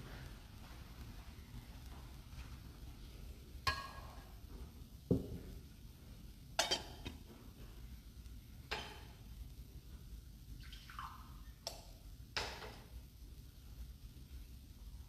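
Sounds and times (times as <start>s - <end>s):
metal vessels clinking: 6.6s - 7.2s.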